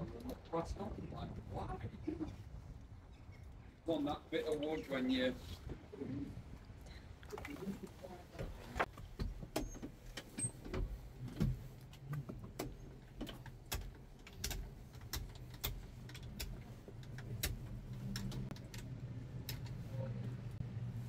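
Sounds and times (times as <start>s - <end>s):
tractor cab controls clicking: 8.8s - 20.4s
low steady hum: 10.7s - 21.0s.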